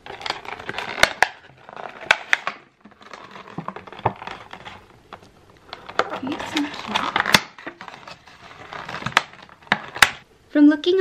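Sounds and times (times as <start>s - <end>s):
plastic container crackling: 0.0s - 10.2s.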